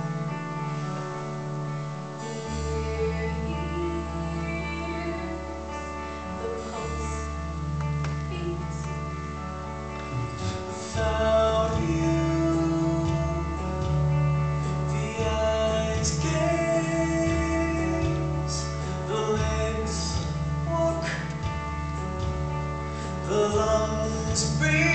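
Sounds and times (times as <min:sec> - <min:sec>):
person singing: 0:02.2 - 0:07.6, 0:10.1 - 0:21.5, 0:23.2 - 0:24.9
band accompaniment: 0:05.0 - 0:24.9.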